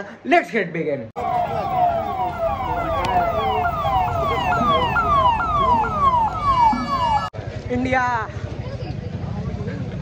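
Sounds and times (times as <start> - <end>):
steady pitched tone: 1.2 - 7.3
police siren wailing: 1.2 - 7.4.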